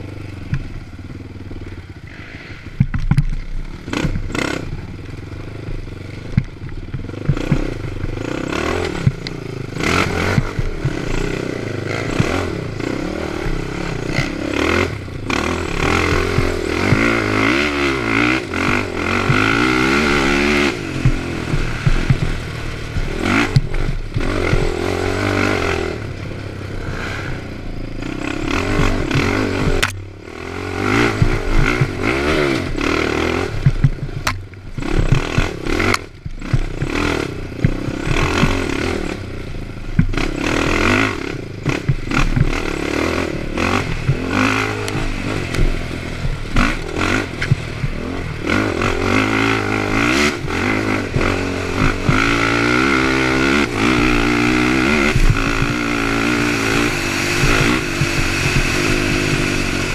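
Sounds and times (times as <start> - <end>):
quad engine revving: 0.0 - 59.9
chassis rattles and knocks: 5.7 - 25.2.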